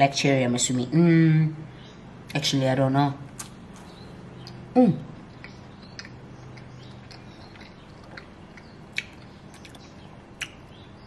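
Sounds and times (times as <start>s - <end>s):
faint low hum: 0.0s - 11.0s
mouth clicks and smacks: 3.3s - 11.0s
person chewing: 3.4s - 10.8s.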